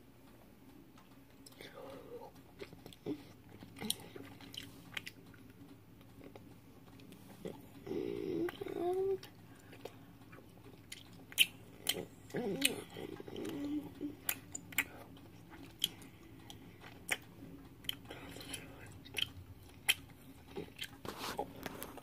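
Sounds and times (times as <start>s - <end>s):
sticky mouth clicks and smacks: 0.9s - 7.8s, 8.5s - 21.0s
person humming: 7.4s - 9.4s, 11.9s - 15.1s.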